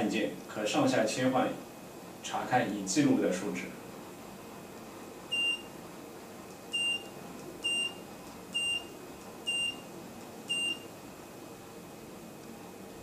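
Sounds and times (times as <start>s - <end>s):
short high key-press beeps: 5.3s - 5.7s, 6.8s - 8.0s, 8.6s - 8.9s, 9.5s - 9.8s, 10.5s - 10.9s.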